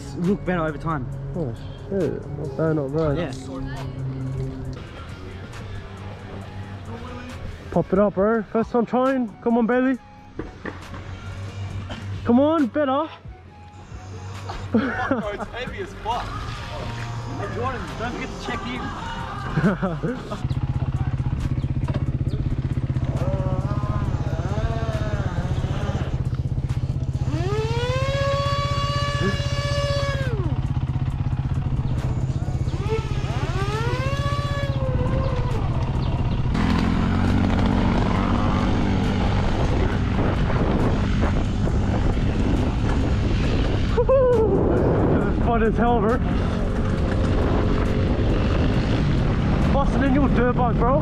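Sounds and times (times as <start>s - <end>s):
motor whine accelerating: 21.4s - 44.0s.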